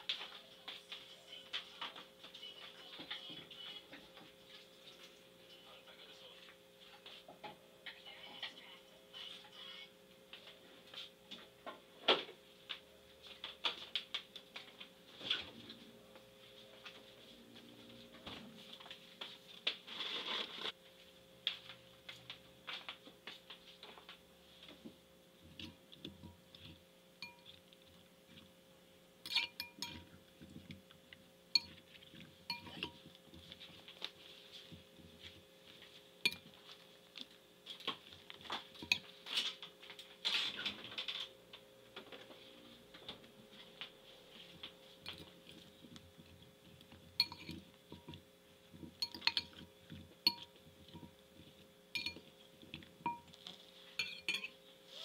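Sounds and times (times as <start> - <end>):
faint steady hum: 0.0 - 55.0
fork scraping glass bowl: 26.5 - 27.6, 29.3 - 30.1, 31.6 - 31.8, 32.5 - 33.6, 36.3 - 36.5, 38.8 - 39.0, 47.2 - 48.2, 49.0 - 49.7, 50.3 - 51.1, 52.0 - 52.3, 53.1 - 53.4, 54.0 - 54.6.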